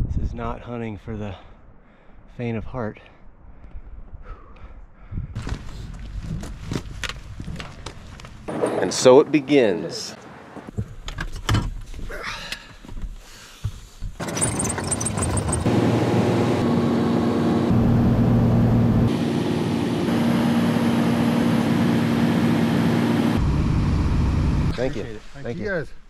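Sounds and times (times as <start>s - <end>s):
propeller plane engine drone: 14.2s - 24.7s.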